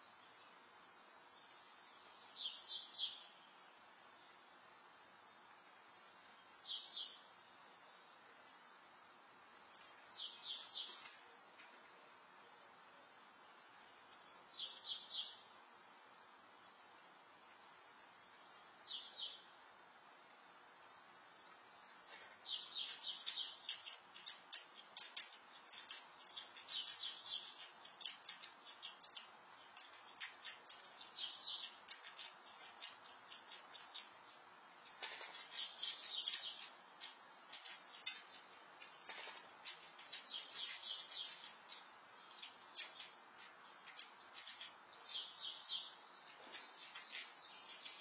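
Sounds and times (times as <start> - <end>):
songbird singing: 0.0 - 48.0
faint clicks: 23.2 - 44.8.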